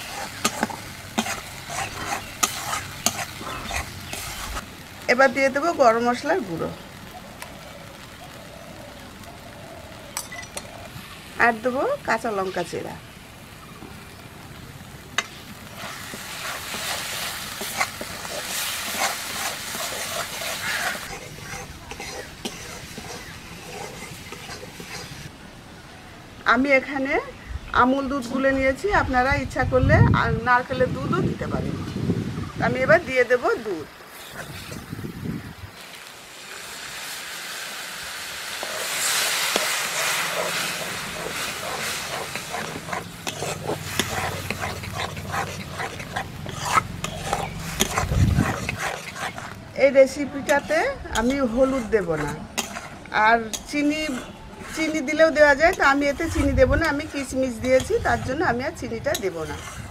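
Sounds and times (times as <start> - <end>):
metal spatula scraping pan: 0.0 - 4.6, 15.8 - 25.3, 38.6 - 59.9
paste sizzling: 0.0 - 8.6, 9.2 - 25.3, 35.8 - 59.9.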